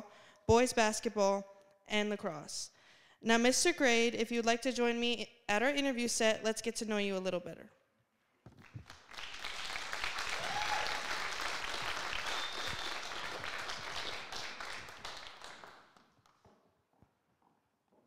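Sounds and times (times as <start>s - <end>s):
audience applauding: 8.6s - 16.4s.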